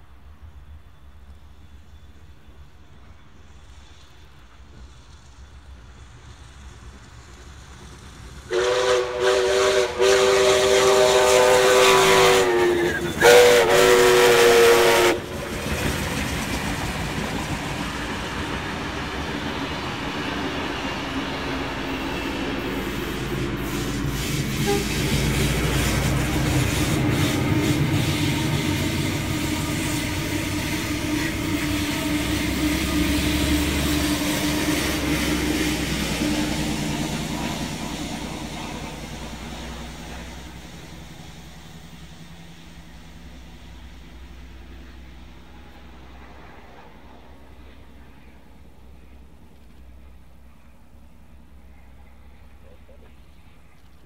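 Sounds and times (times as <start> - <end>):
rumble of trains passing: 0.0 - 54.0
steam locomotive chime whistle: 8.5 - 15.3, 21.5 - 41.4.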